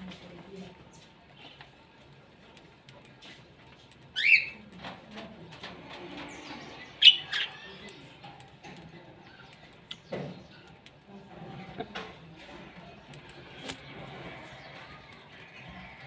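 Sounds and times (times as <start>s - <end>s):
parrots chirping: 4.1s - 4.6s, 6.4s - 8.5s.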